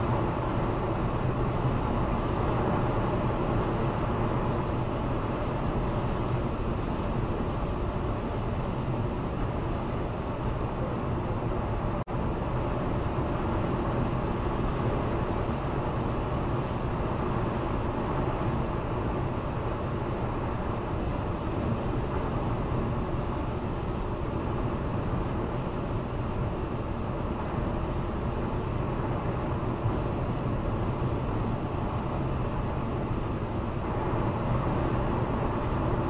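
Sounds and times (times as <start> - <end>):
car tyre and wind noise: 0.0 - 36.0.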